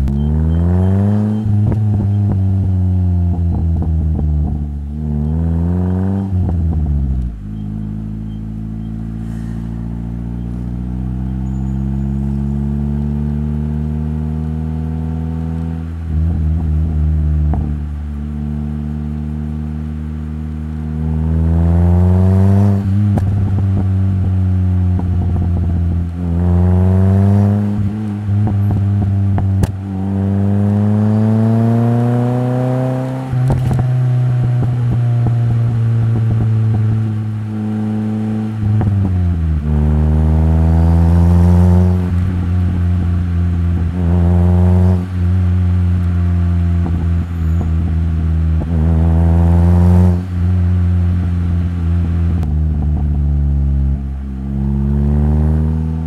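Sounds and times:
car engine accelerating through gears: 0:00.0 - 0:56.0
exhaust pops and crackles: 0:01.3 - 0:05.4, 0:15.3 - 0:20.7, 0:22.9 - 0:26.6, 0:27.6 - 0:30.2, 0:32.5 - 0:56.0.

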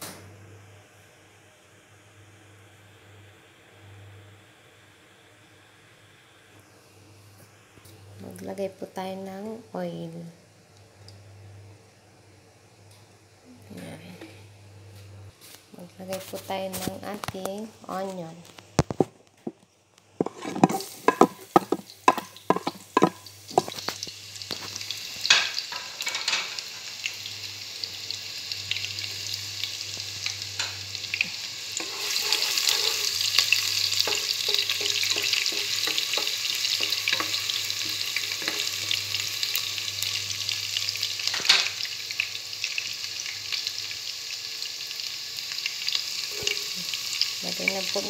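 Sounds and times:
onion sizzling in oil: 0:15.4 - 0:48.0
spatula knocking on pot: 0:20.2 - 0:23.8, 0:34.0 - 0:38.7
spatula taps and scrapes: 0:20.2 - 0:24.0.

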